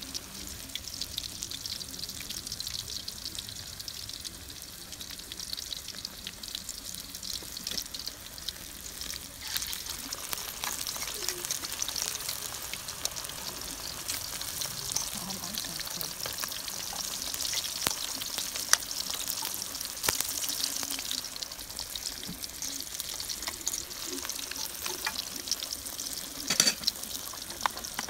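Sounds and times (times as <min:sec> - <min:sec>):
food deep-frying in oil: 0:00.0 - 0:28.0.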